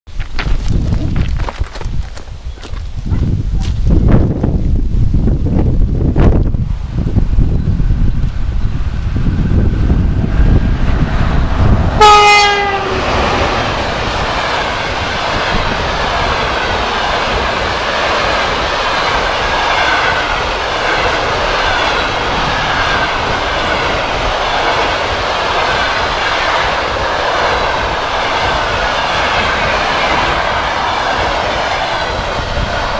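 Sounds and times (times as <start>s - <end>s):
train wheels clickety-clack: 10.2s - 32.9s
locomotive horn blast: 12.0s - 13.3s.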